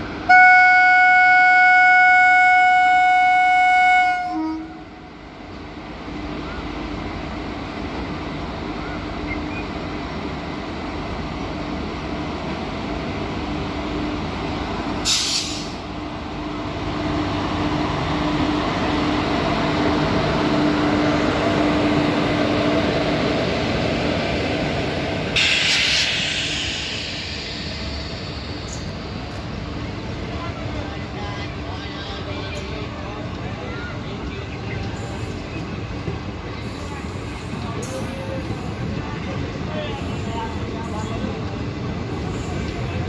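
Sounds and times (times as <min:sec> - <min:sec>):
loud hisses: 0:15.0 - 0:15.9, 0:25.4 - 0:29.2.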